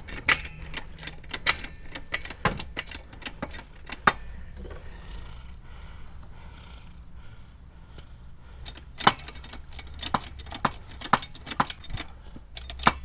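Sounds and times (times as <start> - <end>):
metal parts clicking and tapping: 0.0 - 4.8, 8.4 - 13.0.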